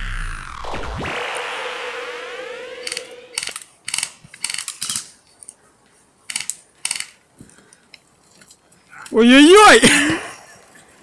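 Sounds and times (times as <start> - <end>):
gearbox mechanisms clicking: 2.8 - 5.6, 6.3 - 8.5.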